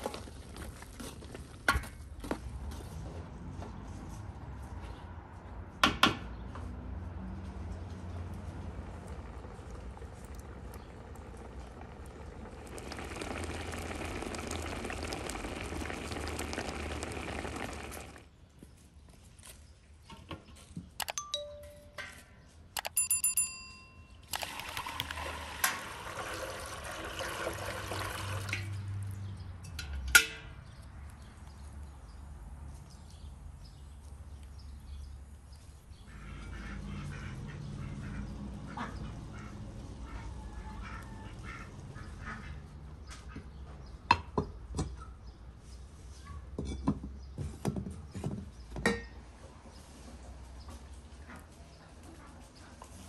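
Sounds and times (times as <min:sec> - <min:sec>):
wood fire crackling: 0:08.4 - 0:18.3.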